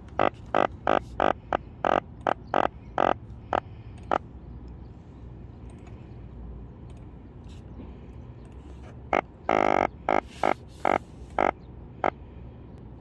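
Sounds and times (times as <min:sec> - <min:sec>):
fish croaking grunts: 0:00.0 - 0:04.2, 0:09.1 - 0:12.2.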